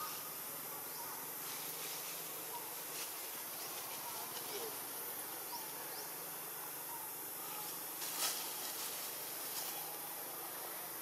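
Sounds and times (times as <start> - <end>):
even high hiss: 0.0 - 11.0.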